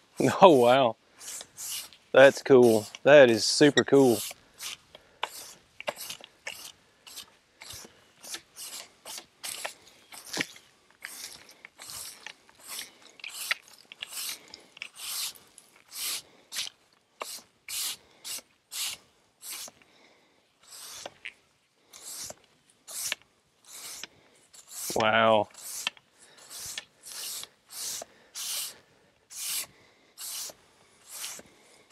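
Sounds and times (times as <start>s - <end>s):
push broom sweeping wood: 0.0s - 19.8s, 20.6s - 21.3s, 21.9s - 31.9s.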